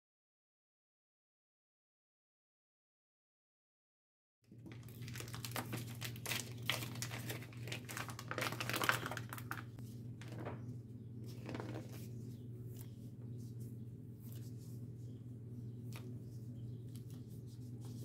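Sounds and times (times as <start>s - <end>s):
packaging rustling and crinkling: 4.5s - 10.6s
steady low hum: 9.3s - 18.0s.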